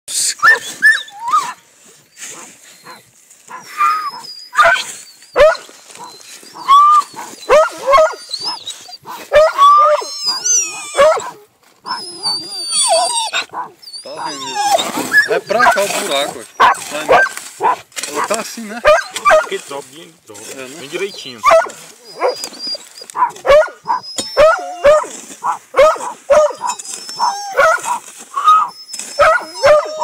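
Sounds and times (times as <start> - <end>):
dogs yelping and whining: 0.4 - 19.5, 20.7 - 30.0
dogs barking: 4.5 - 12.0, 13.2 - 15.9, 16.6 - 19.6, 21.4 - 22.5, 23.1 - 28.5, 29.2 - 30.0.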